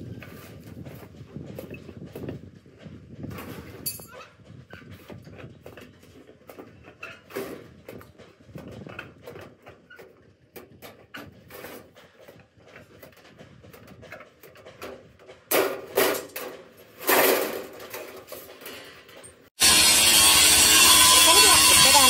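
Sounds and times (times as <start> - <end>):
tools and parts knocking: 5.1 - 19.4
loud rasping noises: 19.6 - 22.0.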